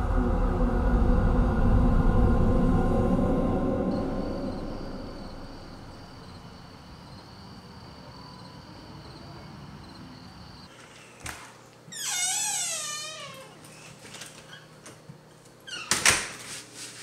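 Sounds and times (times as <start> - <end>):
low rumble of film score: 0.0 - 10.6
crickets chirping: 1.6 - 10.8.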